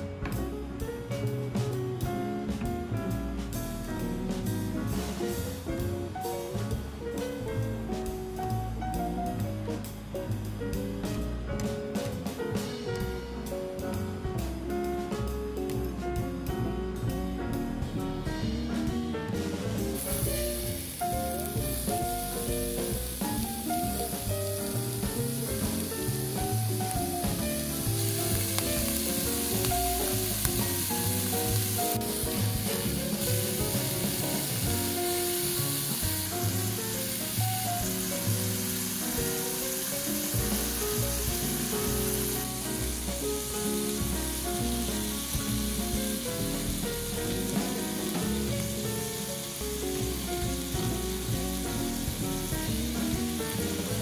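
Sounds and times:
background music: 0.0s - 54.0s
food sizzling in a pan: 19.8s - 54.0s.

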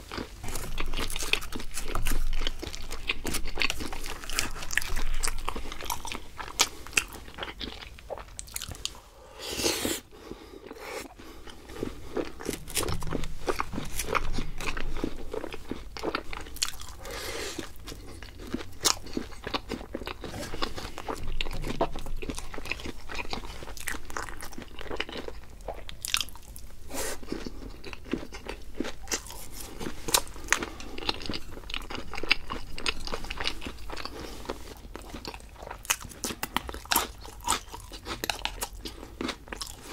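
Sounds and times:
person chewing crunchy food: 0.0s - 39.9s.

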